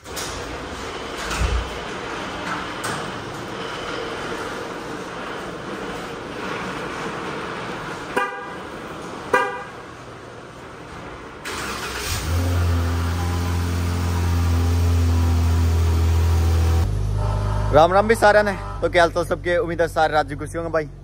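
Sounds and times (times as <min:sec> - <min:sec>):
car engine starting and idling: 0:00.0 - 0:20.9
car horn chirps: 0:08.1 - 0:08.7, 0:09.3 - 0:09.9, 0:17.1 - 0:19.1.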